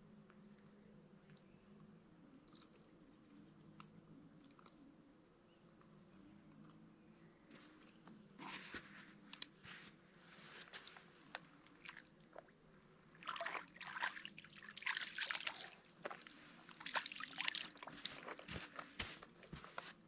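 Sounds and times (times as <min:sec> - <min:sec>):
river water splashing: 0:13.2 - 0:18.4.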